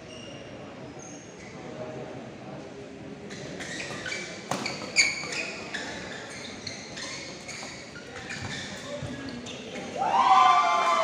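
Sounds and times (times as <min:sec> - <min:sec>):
shoes squeaking on court floor: 0:00.0 - 0:01.5, 0:03.2 - 0:10.0.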